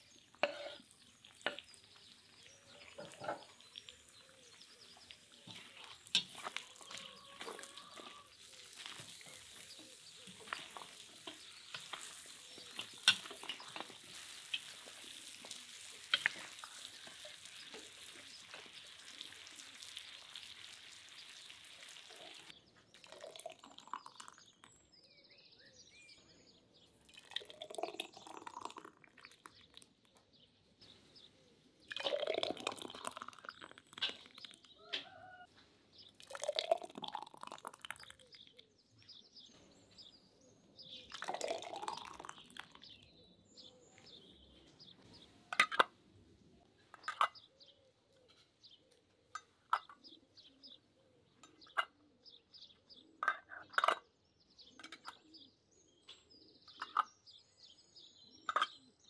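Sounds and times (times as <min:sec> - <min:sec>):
meat and onions sizzling in a pot: 0:00.0 - 0:22.5
spatula scraping and knocking: 0:00.4 - 0:01.8, 0:05.4 - 0:08.2.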